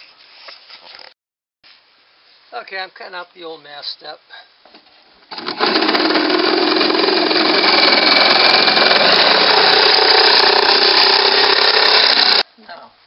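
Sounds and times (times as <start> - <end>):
power cutting tool cutting fiberglass: 5.4 - 12.5.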